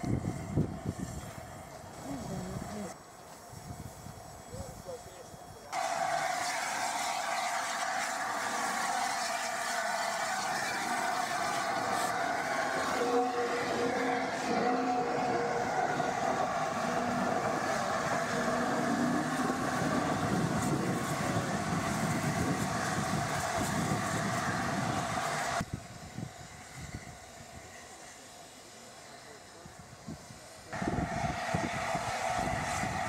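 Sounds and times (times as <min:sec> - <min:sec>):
wind buffeting microphone: 0:00.0 - 0:05.0, 0:15.8 - 0:27.5, 0:30.0 - 0:33.0
steam hissing: 0:00.0 - 0:33.0
steam locomotive rolling past: 0:00.0 - 0:33.0.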